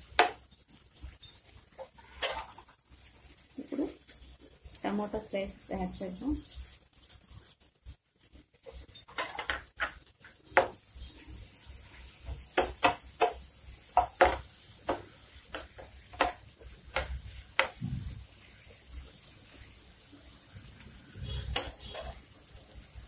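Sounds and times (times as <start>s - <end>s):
metal spoon scraping frying pan: 1.2s - 2.7s, 8.6s - 10.0s, 21.3s - 22.2s.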